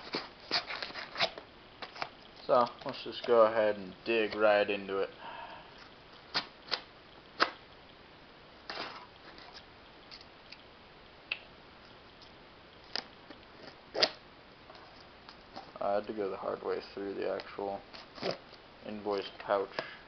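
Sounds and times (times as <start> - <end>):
tape ripping: 13.9 - 14.2, 17.9 - 18.4.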